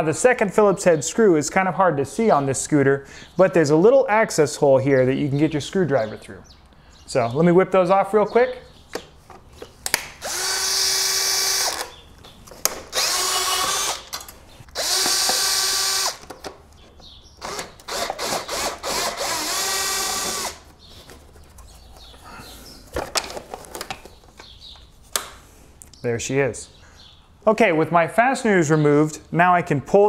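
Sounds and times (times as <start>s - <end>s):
power driver whine: 10.2s - 12.0s, 12.6s - 16.6s, 17.4s - 20.6s.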